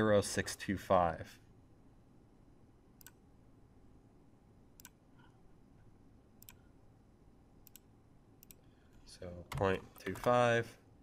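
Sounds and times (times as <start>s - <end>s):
low room hiss: 0.0s - 11.0s
computer mouse clicks: 3.0s - 3.2s, 4.8s - 5.4s, 6.4s - 6.6s, 7.6s - 8.7s.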